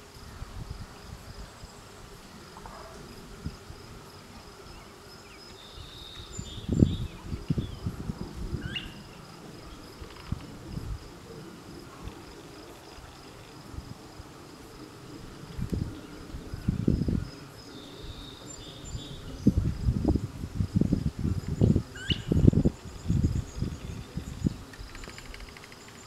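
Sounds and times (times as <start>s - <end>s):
insects chirring: 0.1s - 26.0s
wind buffeting microphone: 6.2s - 18.2s, 18.8s - 25.5s.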